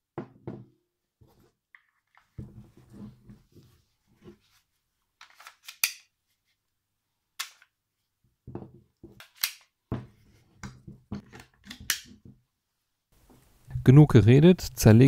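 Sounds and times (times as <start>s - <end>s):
sharp clicks of pistol parts: 5.4s - 6.1s, 9.2s - 9.7s.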